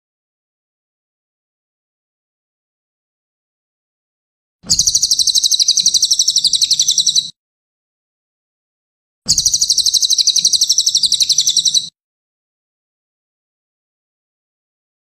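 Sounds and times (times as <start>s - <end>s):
bird trilling: 4.7s - 7.3s, 9.3s - 11.9s.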